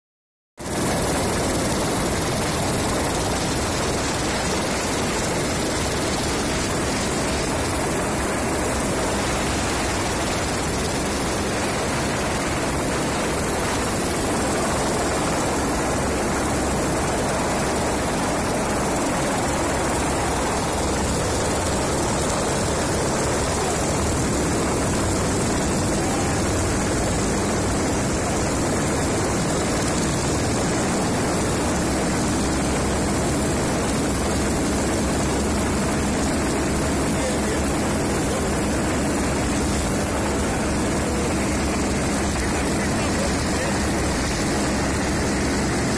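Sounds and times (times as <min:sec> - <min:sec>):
aircraft rotor whirr: 0:00.6 - 0:45.9
thin high whine: 0:00.7 - 0:45.9.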